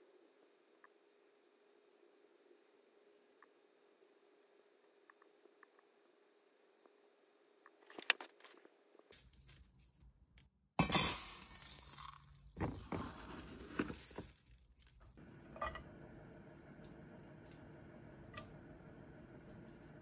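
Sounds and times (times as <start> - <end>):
crinkling and rustling: 7.7 - 10.5, 11.5 - 15.2.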